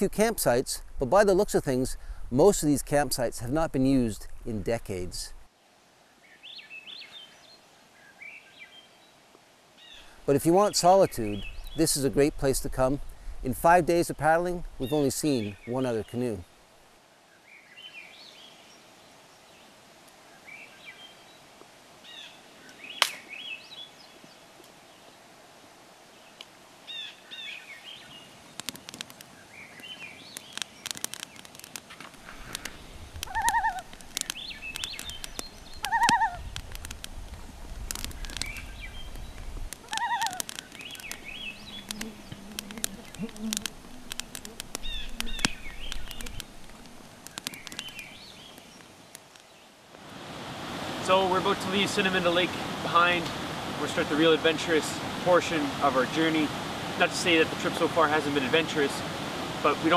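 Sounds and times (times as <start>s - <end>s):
campfire crackling and popping: 0.0s - 5.5s, 10.0s - 17.0s, 22.6s - 23.5s, 26.3s - 26.8s, 27.7s - 59.9s
small birds chirping: 6.2s - 9.2s, 9.8s - 12.2s, 14.8s - 16.5s, 17.2s - 25.3s, 26.2s - 49.8s
short falling bird call: 32.3s - 36.6s, 39.8s - 48.6s.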